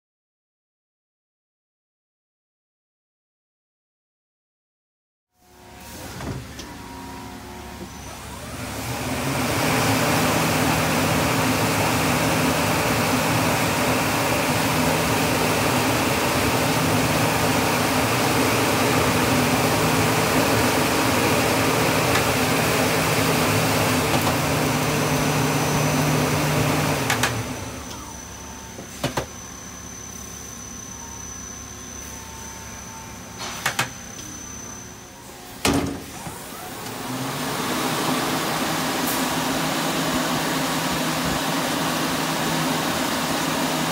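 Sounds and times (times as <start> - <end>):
lathe spindle whirring: 7.7 - 33.2, 36.4 - 43.9
machine background noise: 10.5 - 43.9.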